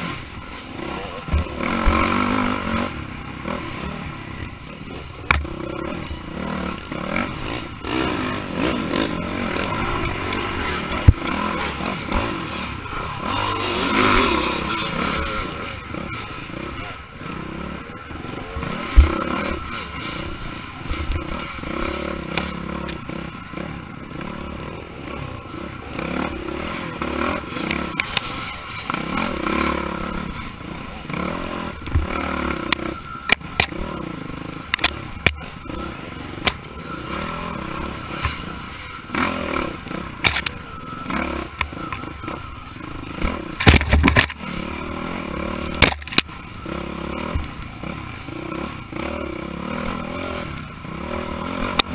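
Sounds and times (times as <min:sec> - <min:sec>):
dirt bike engine revving: 0:00.0 - 0:51.9
bike knocking on roots: 0:43.6 - 0:44.4.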